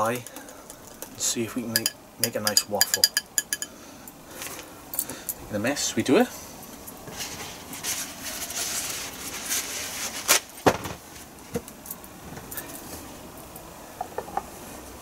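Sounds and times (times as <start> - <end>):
metal whisk knocks and clinks: 1.8 - 3.7
paper towel rustling: 7.1 - 11.4.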